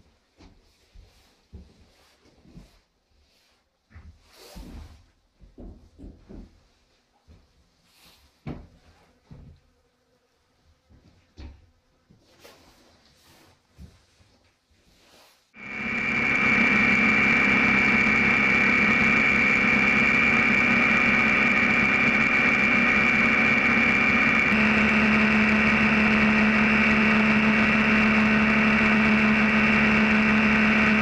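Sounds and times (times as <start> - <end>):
motorcycle engine drone: 15.6 - 31.0.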